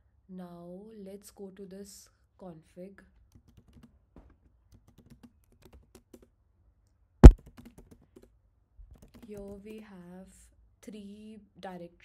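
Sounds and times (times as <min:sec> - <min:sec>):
keyboard key clicks: 0:07.2 - 0:07.8.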